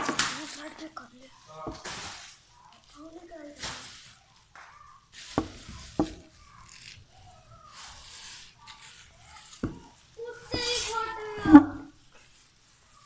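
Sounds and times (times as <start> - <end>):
soft rustling: 0.0 - 13.0.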